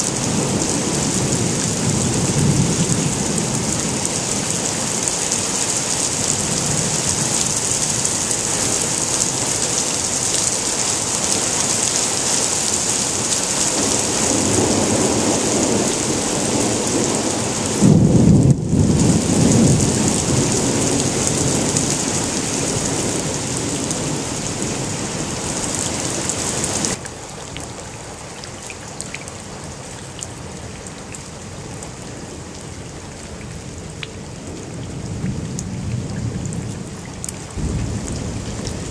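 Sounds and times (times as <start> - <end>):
heavy rain hissing: 0.0 - 27.0, 37.4 - 38.9
rain spattering around a drain: 0.0 - 38.9
rolling thunder: 13.7 - 25.9, 37.5 - 38.9.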